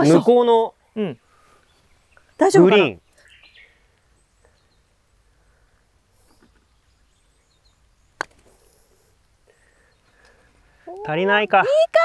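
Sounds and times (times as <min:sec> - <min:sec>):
golf club striking ball: 0:08.2 - 0:08.5.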